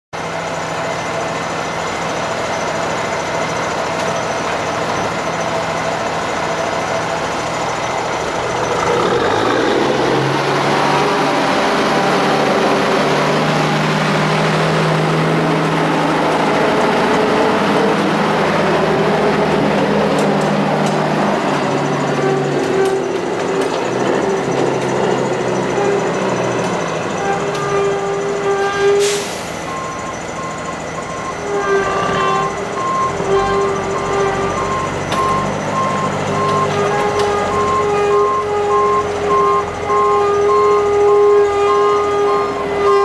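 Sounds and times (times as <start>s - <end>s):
diesel truck engine idling and revving: 0.2s - 43.0s
truck driving past: 0.2s - 43.0s.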